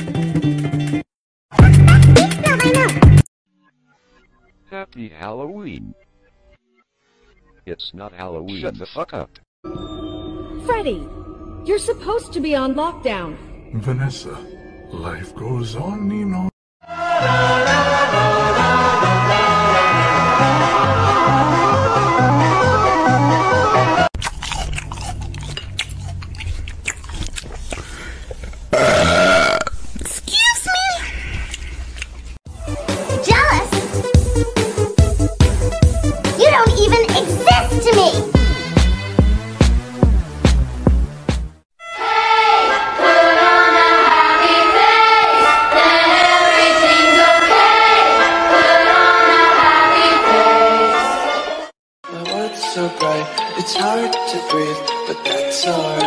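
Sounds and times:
song with high-pitched singing: 16.8 - 24.1, 41.8 - 56.0.

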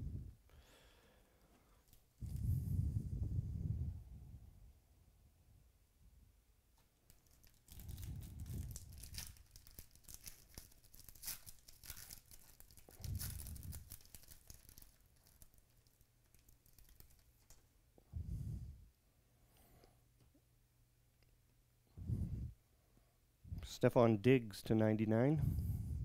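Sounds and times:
foil wrapper crinkling and tearing: 7.1 - 17.6.

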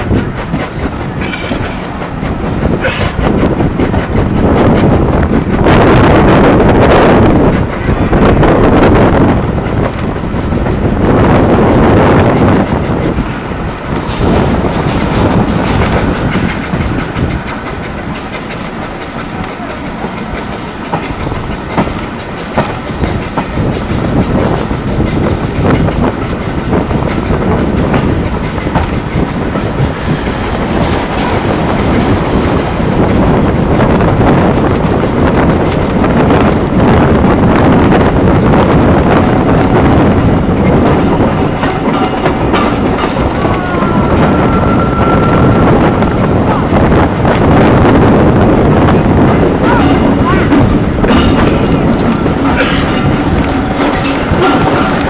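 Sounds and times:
wheels clicking over rail joints: 0.0 - 5.7, 11.6 - 47.7, 48.3 - 55.0
train carriage rumble: 0.0 - 55.0.

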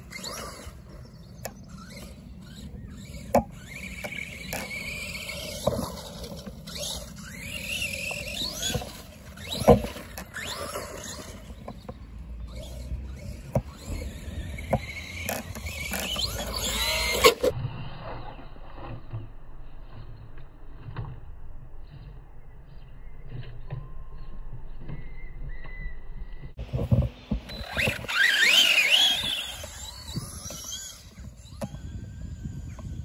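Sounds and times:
electric motor whine: 0.0 - 18.9, 26.6 - 33.0.

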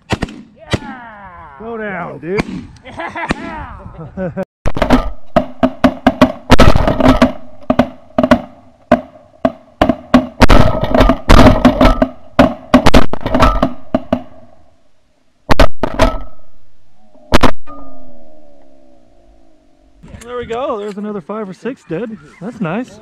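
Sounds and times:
shotgun shots: 0.0 - 0.9, 2.4 - 2.7, 4.7 - 14.5, 15.5 - 16.4
geese calling: 21.8 - 22.9.

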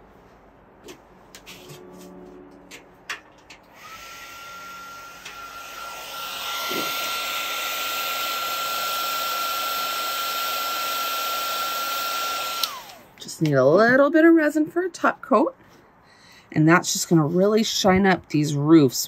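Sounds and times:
heat gun fan whine: 3.1 - 13.2.

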